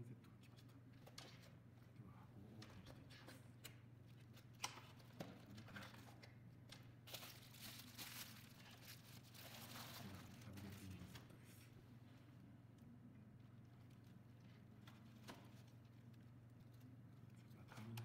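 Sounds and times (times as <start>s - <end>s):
bubble wrap crinkling: 7.0s - 10.9s.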